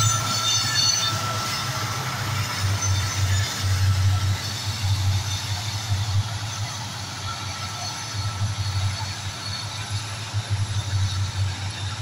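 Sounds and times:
diesel locomotive engines droning: 0:00.0 - 0:12.0.

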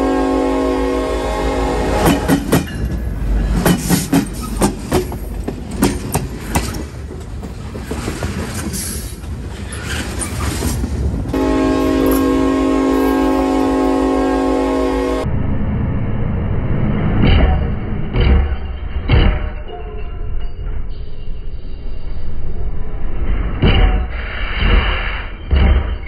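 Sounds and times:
train horn chord: 0:00.0 - 0:02.5, 0:11.3 - 0:15.4
low train rumble: 0:00.0 - 0:26.0
train wheels clacking: 0:02.0 - 0:11.1.

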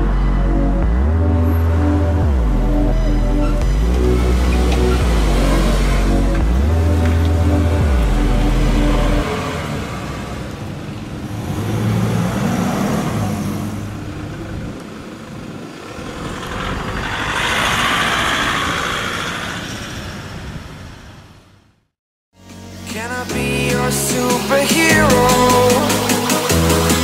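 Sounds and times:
engines accelerating: 0:00.0 - 0:21.5
vehicles driving past: 0:00.0 - 0:21.8.

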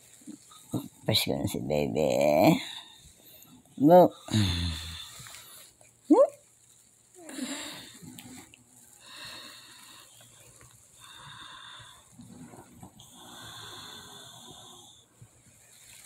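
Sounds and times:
wheezy breathing: 0:07.2 - 0:15.2.

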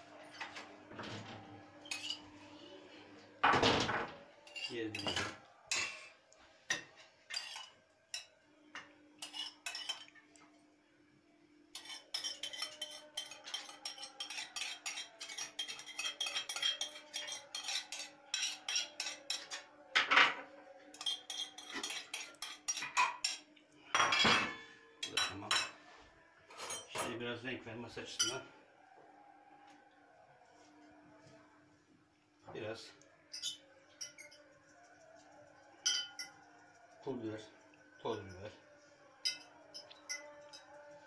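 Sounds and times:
metal spoon scraping glass bowl: 0:01.8 - 0:02.3, 0:04.4 - 0:06.2, 0:07.3 - 0:08.3, 0:09.2 - 0:10.2, 0:11.7 - 0:19.6, 0:20.9 - 0:23.4, 0:33.1 - 0:35.2, 0:35.8 - 0:38.4, 0:39.2 - 0:40.9.

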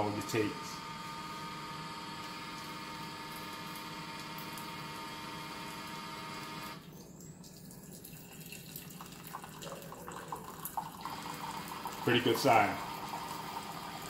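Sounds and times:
pump humming: 0:00.0 - 0:14.0
water trickling into mug: 0:06.9 - 0:14.0.

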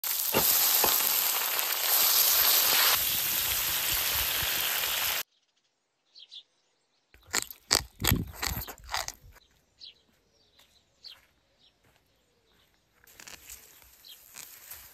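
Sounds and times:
food sizzling in a wok: 0:00.0 - 0:05.2
bird chirp: 0:05.2 - 0:14.4
chewing and crunching: 0:07.2 - 0:09.4.

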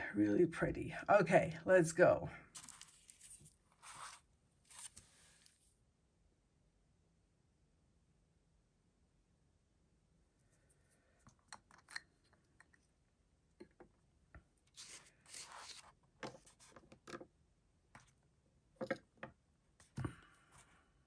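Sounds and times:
hands rustling: 0:02.6 - 0:05.6.

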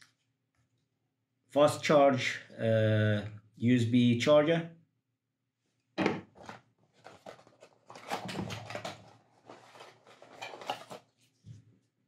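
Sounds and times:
cardboard scraping and rustling: 0:06.4 - 0:11.3.

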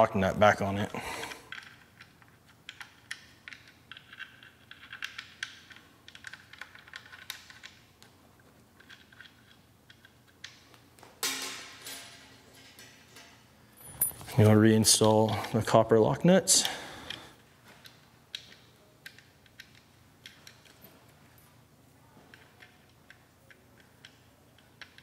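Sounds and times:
metal parts clattering on bench: 0:11.2 - 0:14.4
metal hardware clicks and taps: 0:17.8 - 0:21.0, 0:22.3 - 0:25.0.

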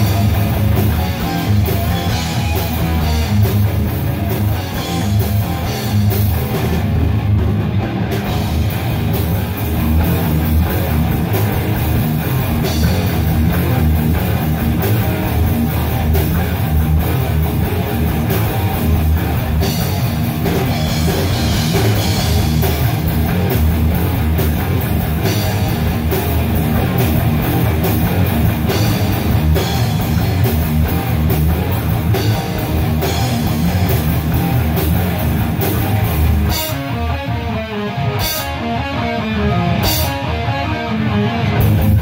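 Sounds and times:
heavy metal band playing: 0:00.0 - 0:42.0
ringing guitar chords: 0:00.0 - 0:42.0.

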